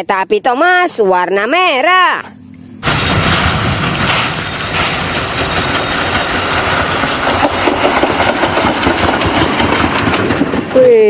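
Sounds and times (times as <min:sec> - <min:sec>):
steam locomotive passing: 0:02.8 - 0:11.0
wheels clattering on rails: 0:02.8 - 0:11.0.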